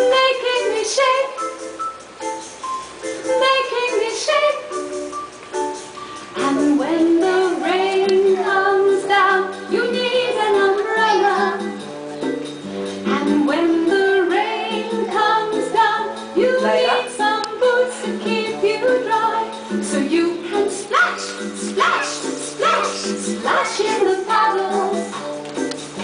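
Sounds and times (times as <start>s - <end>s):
children's song with singing: 0.0s - 26.0s.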